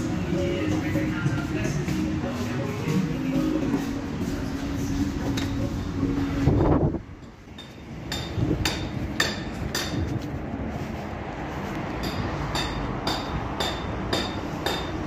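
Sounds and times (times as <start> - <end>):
background music: 0.0 - 6.8
footsteps on hard pavement: 7.8 - 14.6.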